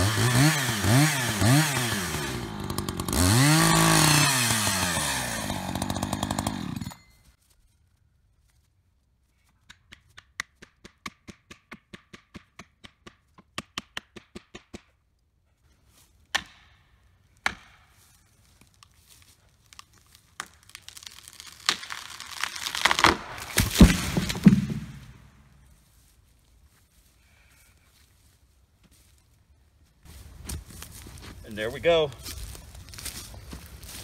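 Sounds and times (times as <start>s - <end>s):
tree trunk crackling and tearing: 0.3s - 6.8s, 18.4s - 25.0s
wood cracking: 18.5s - 25.2s
tree crashing to the ground: 20.4s - 25.2s.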